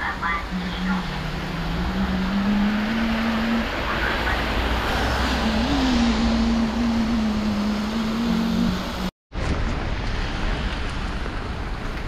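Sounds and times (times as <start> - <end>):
tyres hissing on wet road: 0.0 - 9.1
vehicle low hum: 0.0 - 12.0.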